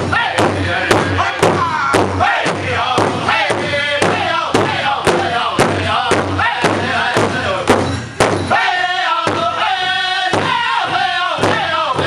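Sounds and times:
group singing high-pitched chant: 0.0 - 7.8, 8.5 - 12.0
large drum struck with sticks: 0.0 - 8.5.

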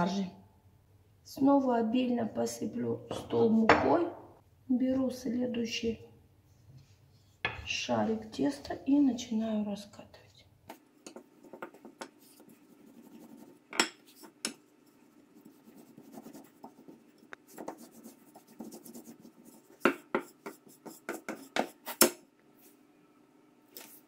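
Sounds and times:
rolling pin rubbing dough: 10.7 - 22.1.

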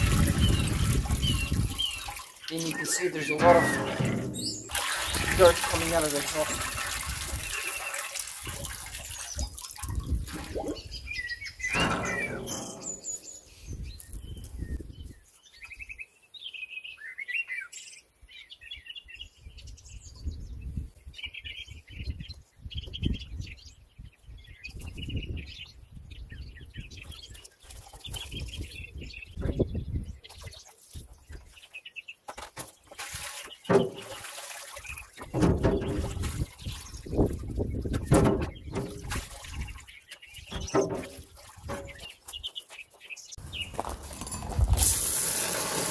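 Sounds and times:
splash in water: 0.0 - 13.4, 32.9 - 42.4
small birds chirping: 0.3 - 44.2.

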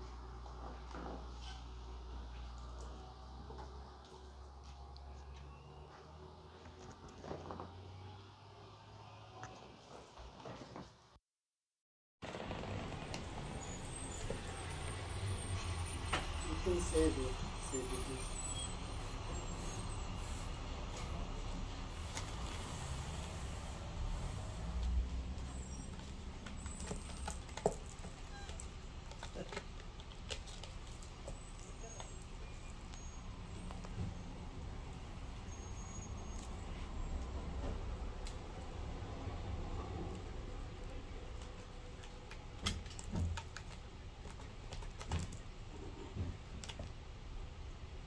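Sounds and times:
kitten claws scratching rope post: 22.0 - 32.4.

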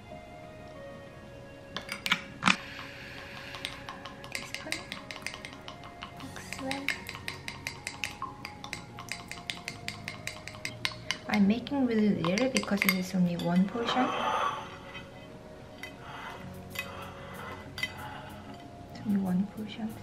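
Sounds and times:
spoon knocking glass: 3.2 - 11.5, 12.2 - 13.6
spoon clinking against glass: 3.4 - 11.4, 12.2 - 14.0, 16.7 - 17.0, 17.6 - 19.2.

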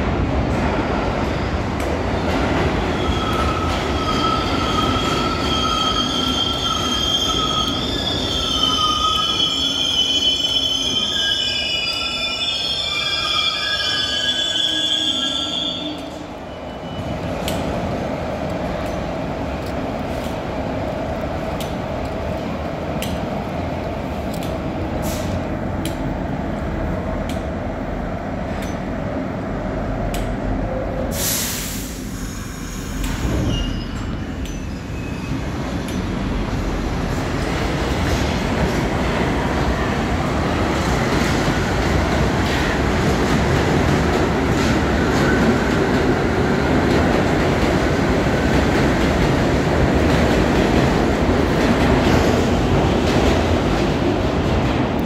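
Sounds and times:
subway train rumbling on track: 0.0 - 55.0
loud hiss: 31.1 - 33.4.

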